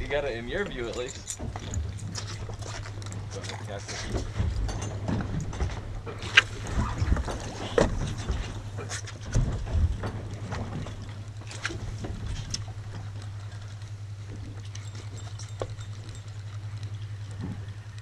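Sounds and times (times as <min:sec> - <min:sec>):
steady low hum: 0:00.0 - 0:18.0
water slapping against hull: 0:00.0 - 0:18.0.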